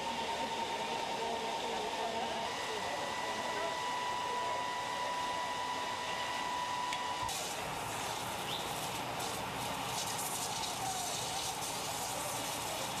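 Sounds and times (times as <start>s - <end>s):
fire hoses and pumps rushing: 2.6s - 13.0s.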